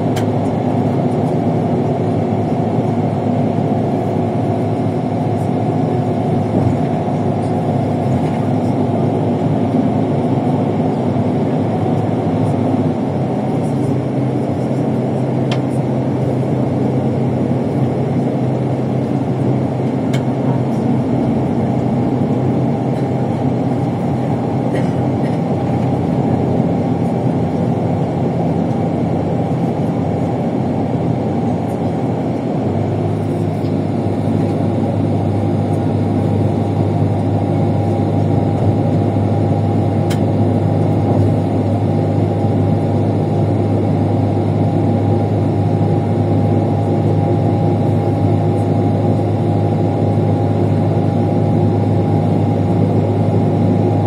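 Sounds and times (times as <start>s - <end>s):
road noise: 0.0s - 44.2s
bus diesel engine: 0.0s - 54.0s.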